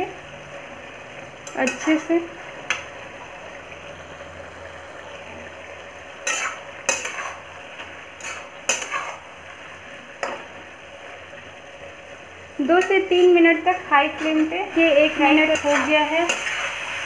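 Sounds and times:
food sizzling in a pan: 0.0s - 17.0s
metal spatula scraping a pan: 1.4s - 2.2s, 6.1s - 9.4s, 12.7s - 17.0s.

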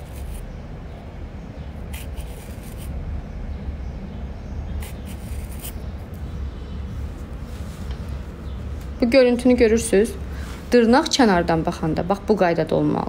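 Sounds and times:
nail file rasping: 0.0s - 0.4s, 1.9s - 2.9s, 4.8s - 5.8s
low steady rumble: 0.0s - 13.0s.

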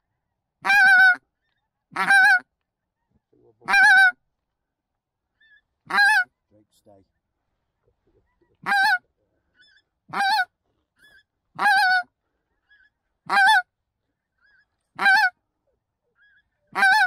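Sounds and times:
faint goose calls: 0.6s - 17.0s
goose call honks: 2.0s - 2.4s, 3.6s - 4.2s, 5.9s - 6.3s, 8.6s - 9.0s, 10.1s - 10.5s, 11.6s - 12.1s, 15.0s - 15.4s, 16.7s - 17.0s.

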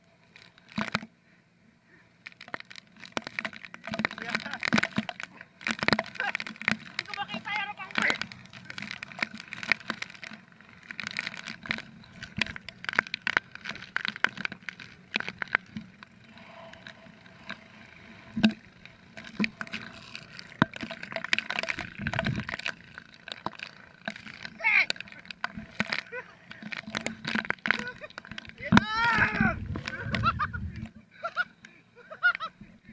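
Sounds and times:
sharp clicks and knocks: 2.3s - 16.1s.

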